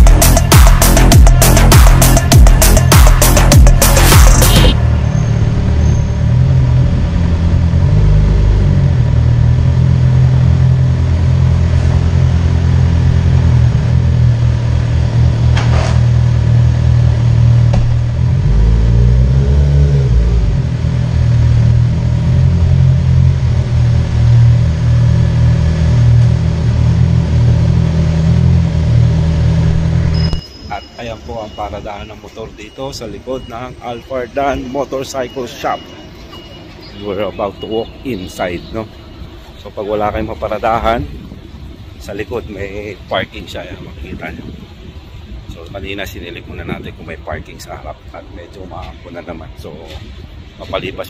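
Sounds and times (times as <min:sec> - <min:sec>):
motorcycle engine running: 0:00.0 - 0:18.9, 0:20.0 - 0:30.4.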